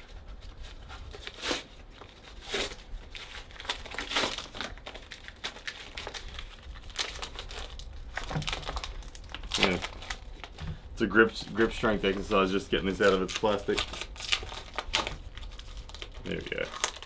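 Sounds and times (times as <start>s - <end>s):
plastic packaging crinkling and tearing: 0.0s - 17.0s.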